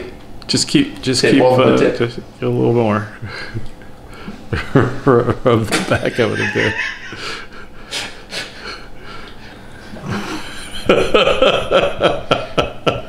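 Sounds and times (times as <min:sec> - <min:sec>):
person laughing: 0:04.5 - 0:07.9, 0:09.9 - 0:13.0.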